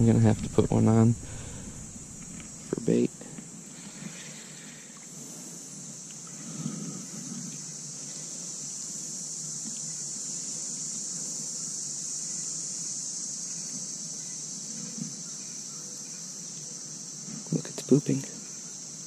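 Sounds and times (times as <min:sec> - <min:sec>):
faint low rumble: 0:00.0 - 0:03.3
high-pitched insect chorus: 0:00.0 - 0:19.0.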